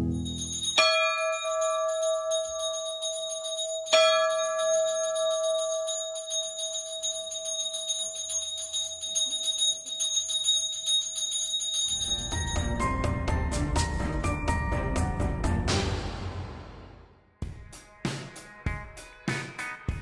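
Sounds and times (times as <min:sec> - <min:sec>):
metal bell ringing: 0:00.0 - 0:13.6
fast steady jingling: 0:00.1 - 0:13.5.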